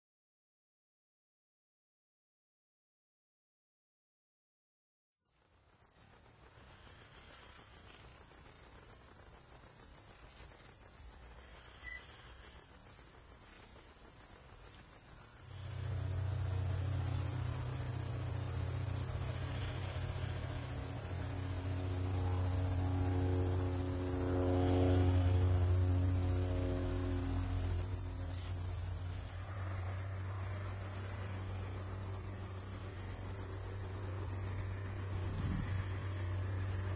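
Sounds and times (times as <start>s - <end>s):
crickets chirring: 5.3s - 36.9s
low musical drone: 15.7s - 30.8s.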